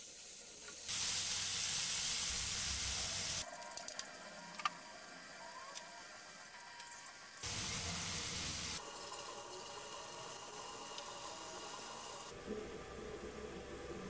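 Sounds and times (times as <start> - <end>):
fish sizzling in pan: 0.0 - 3.4.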